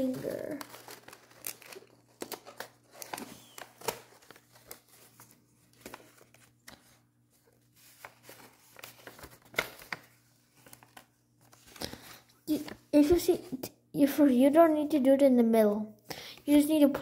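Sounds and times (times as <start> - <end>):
paper rustling and crinkling: 0.0 - 13.2.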